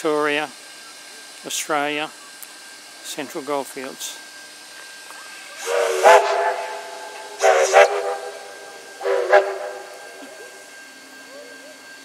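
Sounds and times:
hiss of escaping steam: 0:05.4 - 0:10.4
steam locomotive whistle blasts: 0:05.6 - 0:11.3.

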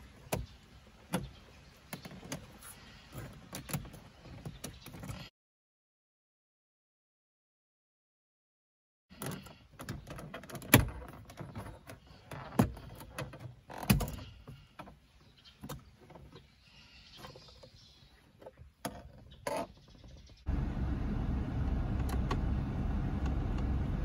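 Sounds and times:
plastic rubbing and creaking: 0:01.9 - 0:05.3, 0:09.1 - 0:15.0, 0:17.2 - 0:20.4.

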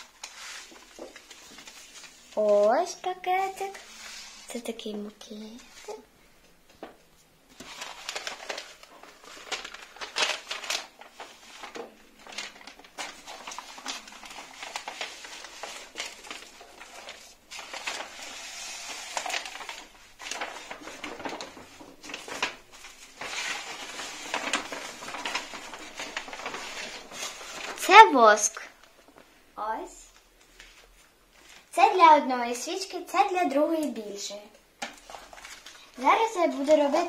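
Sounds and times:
wrapping paper rustling and crinkling: 0:00.0 - 0:37.0.

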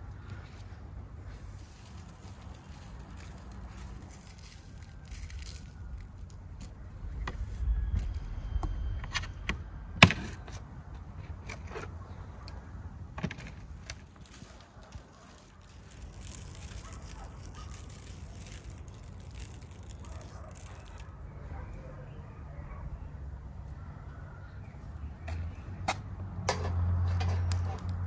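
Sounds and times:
salt grains pattering: 0:01.2 - 0:08.6, 0:14.0 - 0:21.1.

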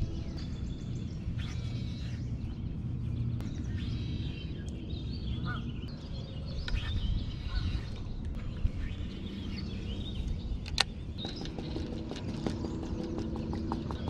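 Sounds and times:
low outdoor rumble: 0:00.0 - 0:14.0
small birds chirping: 0:00.0 - 0:14.0.

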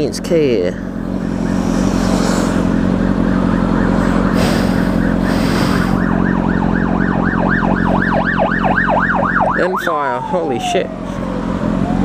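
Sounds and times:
motorcycle engine running: 0:00.0 - 0:09.5
emergency siren yelping: 0:01.1 - 0:12.0.

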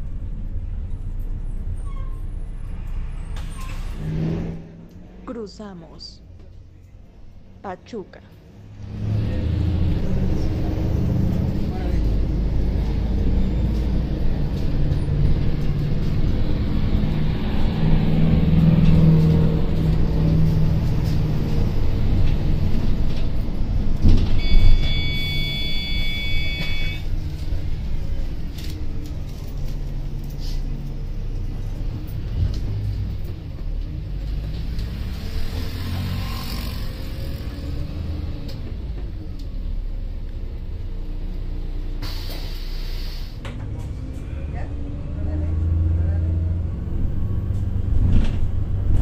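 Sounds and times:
bus engine and road rumble: 0:00.0 - 0:49.0.

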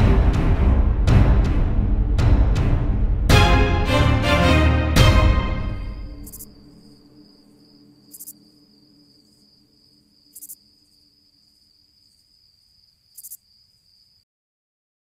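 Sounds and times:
music: 0:00.0 - 0:07.7
insect chirping: 0:06.0 - 0:14.2.

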